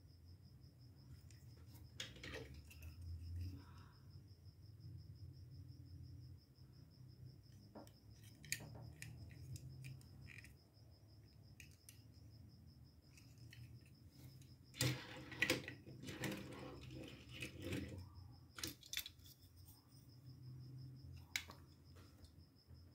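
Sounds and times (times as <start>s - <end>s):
plastic toy clicks and rattles: 18.6s - 19.3s.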